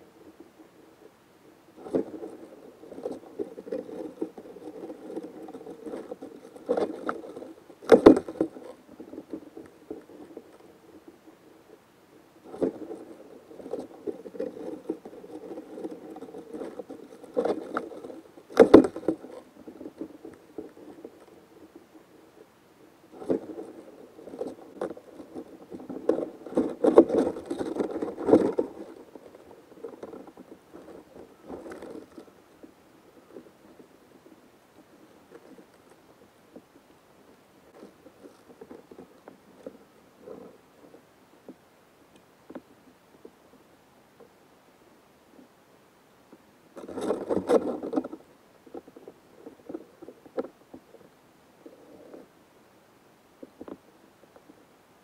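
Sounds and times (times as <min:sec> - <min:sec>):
insect chewing crackling and rustling: 0:01.7 - 0:36.7, 0:46.8 - 0:52.3.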